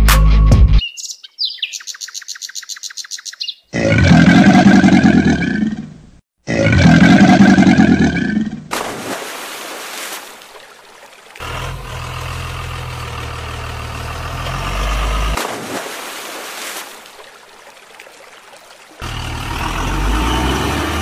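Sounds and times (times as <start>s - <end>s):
truck engine rumbling: 10.7s - 15.6s, 18.7s - 21.0s.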